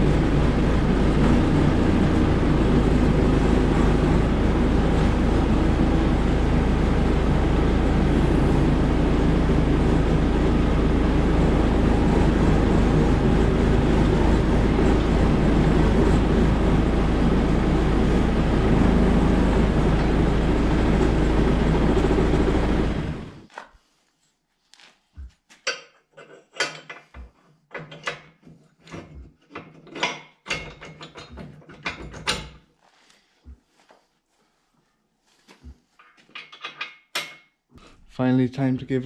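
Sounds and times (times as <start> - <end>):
rumbling machine: 0.0 - 23.5.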